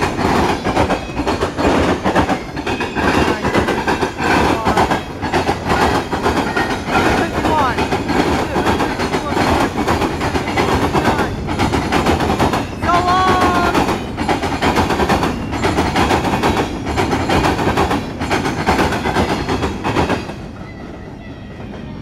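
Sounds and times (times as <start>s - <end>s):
train wheels clattering: 0.0s - 22.0s.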